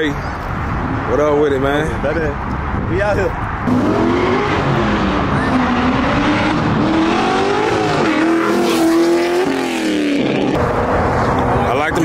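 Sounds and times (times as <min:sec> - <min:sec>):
car engine revving: 0:03.6 - 0:11.4.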